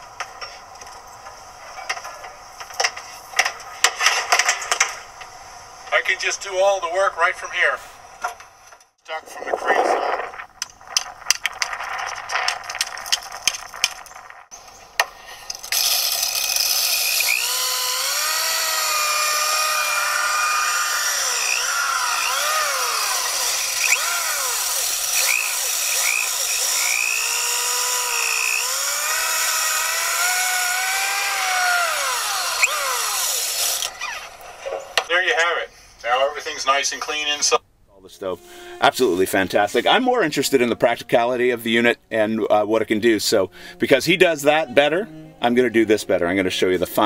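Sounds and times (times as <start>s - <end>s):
drill motor whine: 15.6s - 34.5s.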